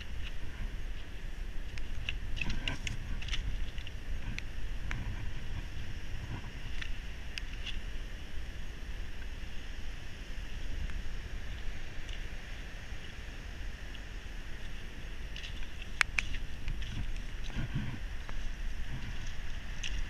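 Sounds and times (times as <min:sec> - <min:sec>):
stones clicking underfoot: 0:00.0 - 0:05.0, 0:15.3 - 0:20.0
surf roaring: 0:00.0 - 0:20.0
wind buffeting microphone: 0:00.0 - 0:20.0.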